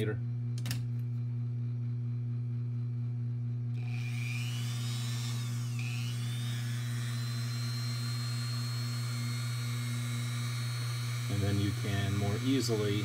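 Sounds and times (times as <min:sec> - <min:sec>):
rotary tool whine: 0:03.7 - 0:13.0.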